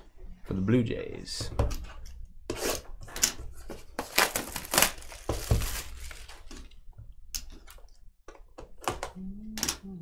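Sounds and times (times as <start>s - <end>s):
plastic wrap crinkling and tearing: 4.0s - 6.7s.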